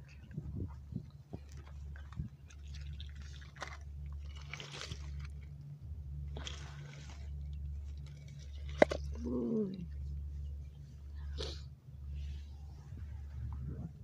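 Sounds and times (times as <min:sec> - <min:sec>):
footsteps on wet pebbles: 0:00.0 - 0:05.6, 0:06.2 - 0:09.3
low rumble: 0:00.0 - 0:14.0.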